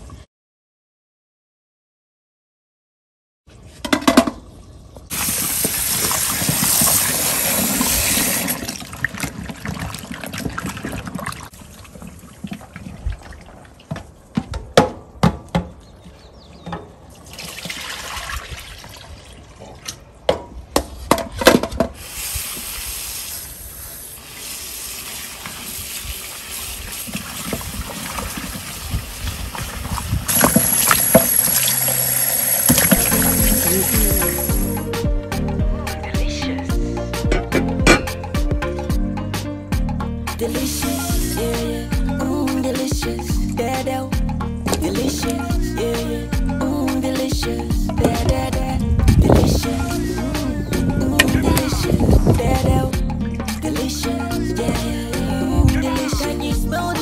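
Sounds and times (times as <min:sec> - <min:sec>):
tap water running into bowl: 0:24.4 - 0:34.8.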